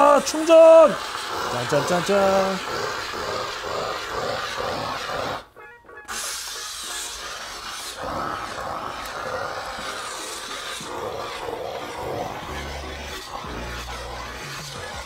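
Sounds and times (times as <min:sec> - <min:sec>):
steam cleaner hissing: 0:00.0 - 0:15.0
background music: 0:04.7 - 0:08.7.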